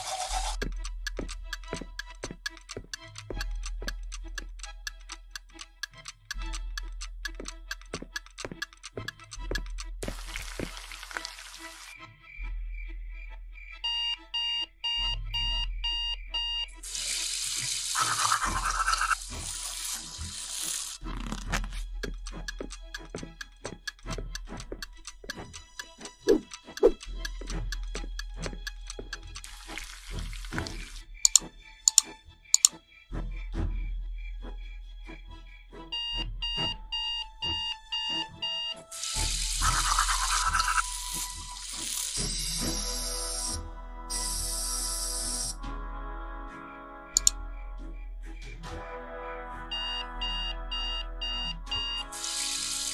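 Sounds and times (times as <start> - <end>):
tap running water: 0.0 - 3.9, 7.4 - 11.9, 16.8 - 32.0, 39.0 - 42.3, 52.2 - 52.9
clock ticking: 0.4 - 10.8, 21.7 - 30.0, 30.6 - 32.8, 35.9 - 42.2, 47.2 - 47.4
background beat: 0.6 - 10.1
alarm beeping: 13.8 - 16.8, 35.9 - 41.2
toothbrush scrubbing teeth: 16.9 - 23.0, 39.1 - 42.4
hands scrubbing: 18.0 - 21.8.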